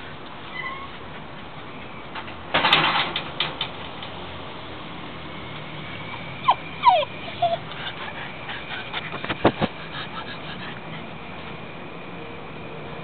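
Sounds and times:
dog whimpers: 0:06.1 - 0:11.1.

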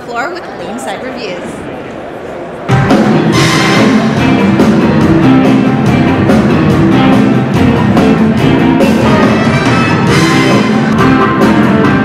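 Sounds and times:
electric guitar: 0:02.7 - 0:12.0
rock band playing loudly: 0:02.7 - 0:12.0
steady drum beat: 0:02.7 - 0:12.0.

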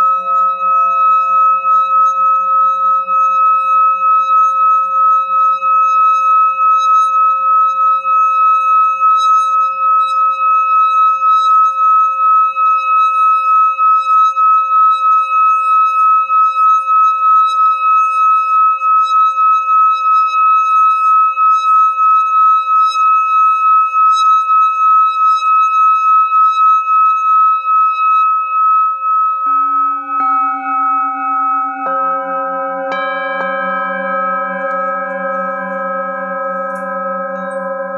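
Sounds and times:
singing bowl rubbed with mallet: 0:00.0 - 0:37.9
singing bowls struck and ringing: 0:00.0 - 0:37.9.

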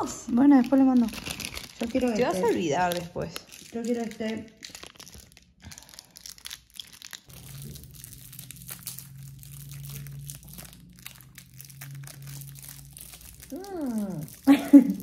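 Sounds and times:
plastic candy wrappers crinkling: 0:00.0 - 0:15.0
low steady hum: 0:07.3 - 0:15.0.

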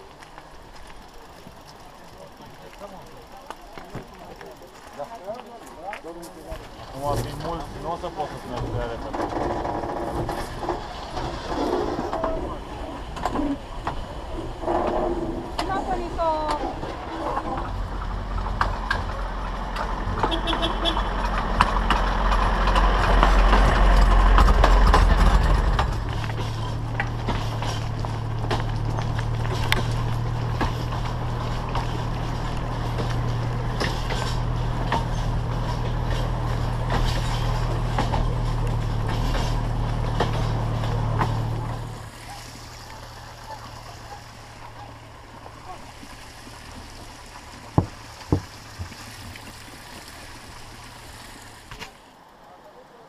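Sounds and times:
engine rumbling: 0:00.0 - 0:53.0
bike knocking over wooden sleepers: 0:16.4 - 0:42.0, 0:46.7 - 0:49.8.

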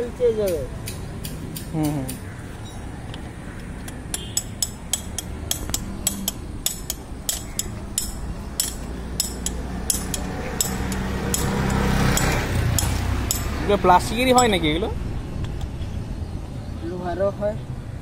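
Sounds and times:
spanner tapping steel rod: 0:03.8 - 0:13.7, 0:14.3 - 0:14.6.

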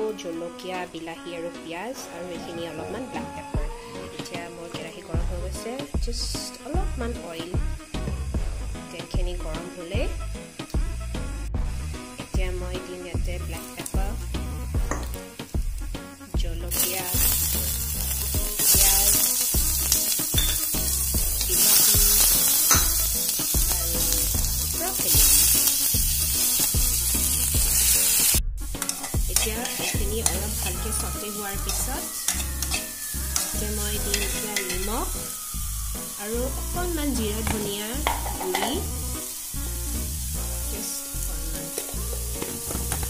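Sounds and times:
food sizzling in hot oil: 0:04.2 - 0:43.0
metal spatula scraping a pan: 0:27.8 - 0:35.4.

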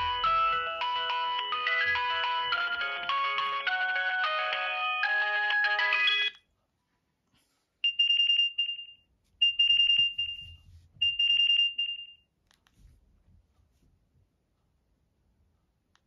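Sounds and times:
polyphonic ringtone melody: 0:00.0 - 0:06.4.

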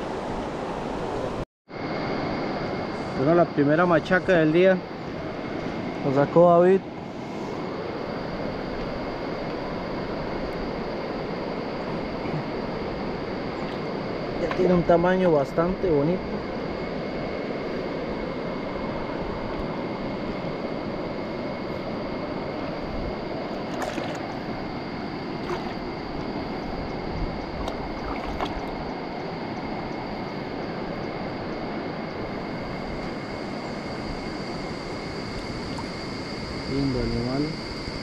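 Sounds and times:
faint small splashes: 0:23.6 - 0:24.4, 0:25.4 - 0:26.0, 0:27.5 - 0:28.8.

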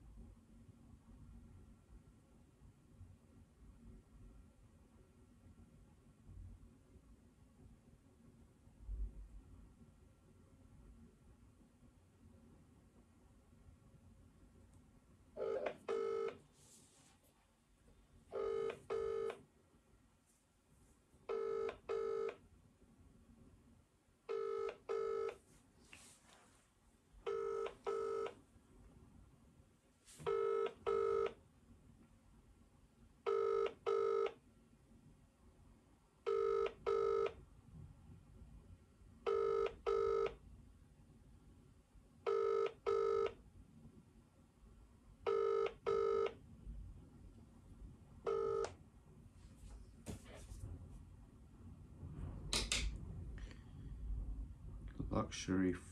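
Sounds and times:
telephone ringback tone: 0:15.4 - 0:16.4, 0:18.3 - 0:19.4, 0:21.3 - 0:22.4, 0:24.3 - 0:25.4, 0:27.3 - 0:28.4, 0:30.3 - 0:31.4, 0:33.3 - 0:34.4, 0:36.3 - 0:37.4, 0:39.3 - 0:40.4, 0:42.3 - 0:43.4, 0:45.3 - 0:46.4, 0:48.3 - 0:48.8.

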